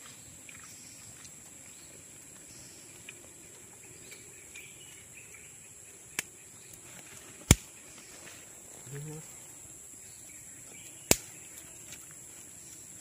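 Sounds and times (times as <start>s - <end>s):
high insect drone: 0.0s - 13.0s
sharp crack of fire: 7.4s - 7.7s.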